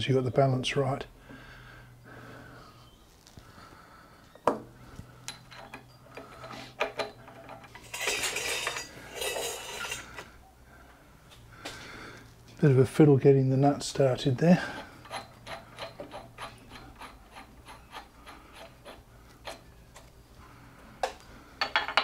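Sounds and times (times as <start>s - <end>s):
small metal parts clinking: 5.2s - 10.3s
metal rattling and scraping: 5.4s - 10.3s.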